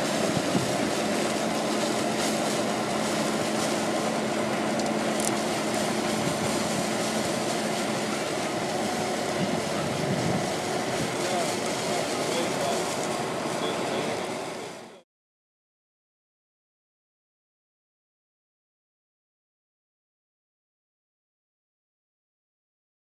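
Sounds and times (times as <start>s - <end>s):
bulldozer engine hum: 0.0s - 15.0s.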